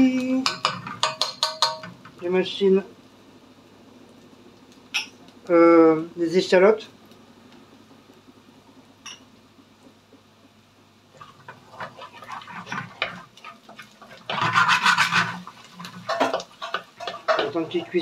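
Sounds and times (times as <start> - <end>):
utensil scraping in pan: 11.2 - 18.0.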